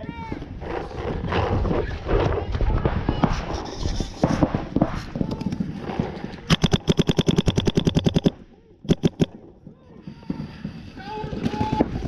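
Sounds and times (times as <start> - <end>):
paintball marker rapid fire: 6.4 - 9.4.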